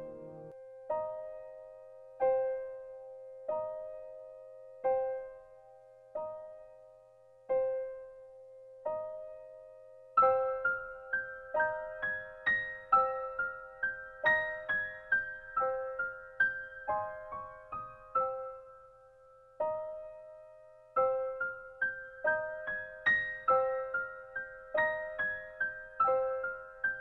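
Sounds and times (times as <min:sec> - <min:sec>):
keyboard melody: 0:00.0 - 0:00.6.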